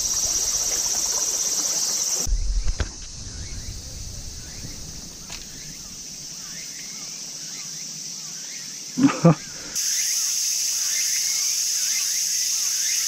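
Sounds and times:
crickets chirring: 0.0s - 13.0s
low rumble: 2.3s - 6.0s.

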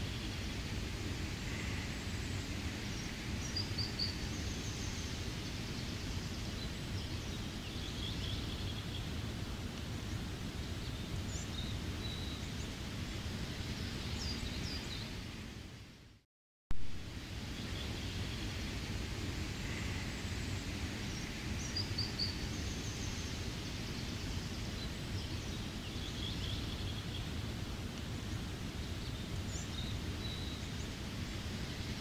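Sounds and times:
steady rain: 0.0s - 32.0s.

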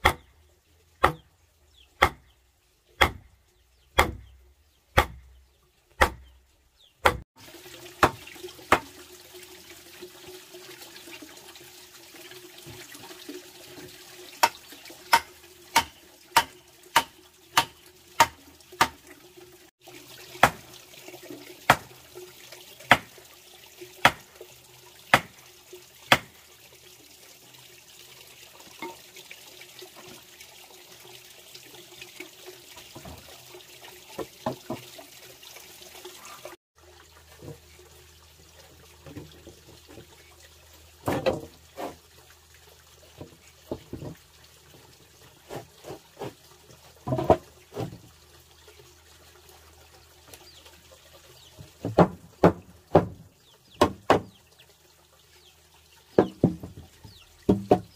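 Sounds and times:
hammer driving stake into dirt: 3.0s - 3.2s, 4.0s - 4.3s, 5.0s - 5.2s, 6.0s - 6.3s, 7.0s - 7.2s.

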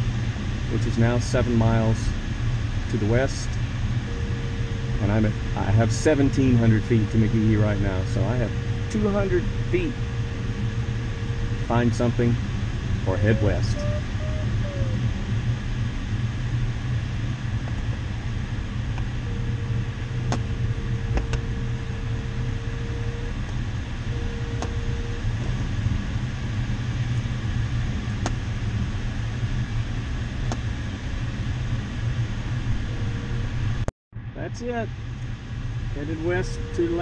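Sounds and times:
air rushing past cockpit: 0.0s - 33.9s
electronic beep: 4.1s - 12.4s, 20.6s - 23.4s, 24.1s - 25.2s, 36.1s - 37.0s.

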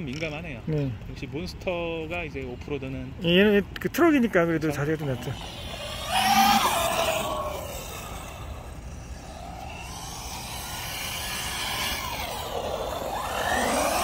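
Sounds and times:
toy truck motor whining: 5.0s - 14.0s.

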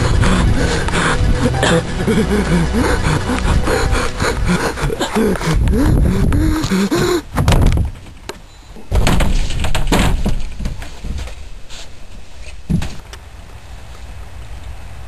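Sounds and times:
knocks on wooden planks: 7.0s - 11.4s.

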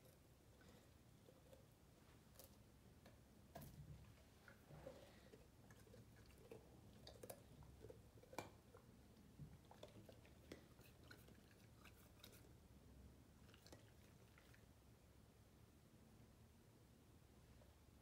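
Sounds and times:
dog chewing a carrot: 0.0s - 12.6s, 13.3s - 14.7s.

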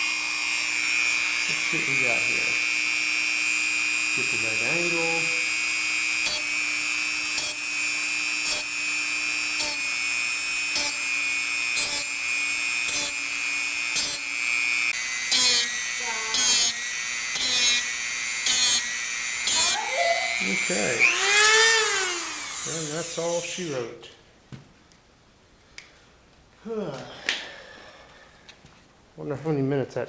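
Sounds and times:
grinding bursts on metal: 0.0s - 23.7s
rotary tool whining: 0.0s - 23.9s.

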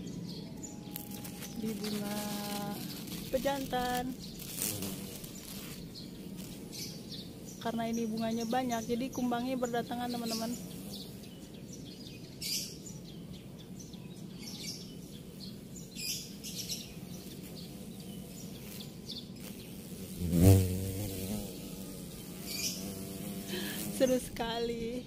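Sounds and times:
small birds chirping: 0.0s - 25.0s
bee wing buzz: 0.8s - 11.7s, 15.0s - 25.0s.

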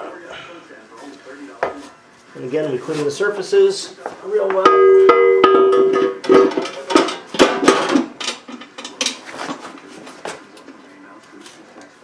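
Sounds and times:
metal clanks and knocks: 4.6s - 9.7s.

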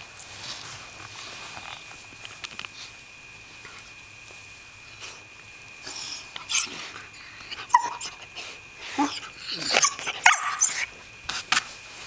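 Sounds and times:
puppy yipping and whimpering: 6.4s - 8.3s, 9.0s - 10.9s.

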